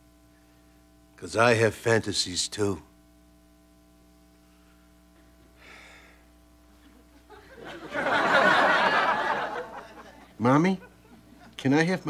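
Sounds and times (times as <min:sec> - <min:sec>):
faint steady hum: 0:00.0 - 0:12.0
audience laughter: 0:06.8 - 0:11.6.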